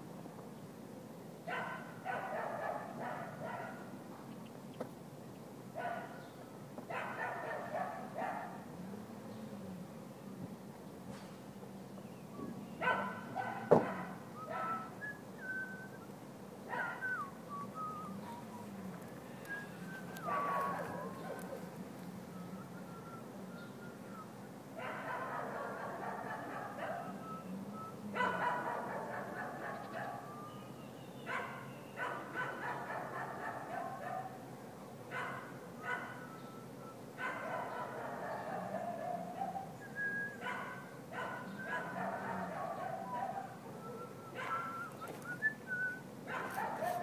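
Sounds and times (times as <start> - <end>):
thin whistled notes: 14.4 - 16.1, 17.0 - 18.7, 19.4 - 21.0, 22.3 - 24.3, 39.8 - 40.4, 43.8 - 46.0.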